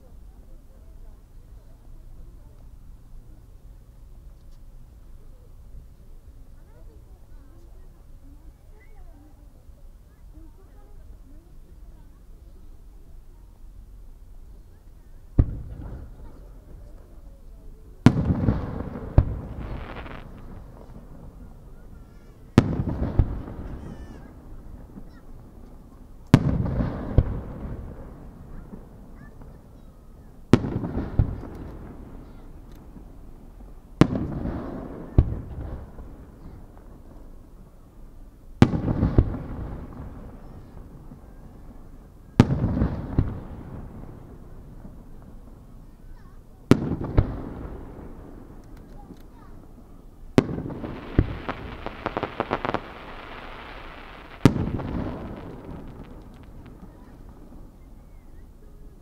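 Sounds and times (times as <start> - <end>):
small firework crack: 14.8 - 37.8, 38.6 - 59.0
firework booms with echo: 15.3 - 16.9, 18.0 - 37.2, 38.6 - 45.8, 46.7 - 48.8, 49.4 - 58.2.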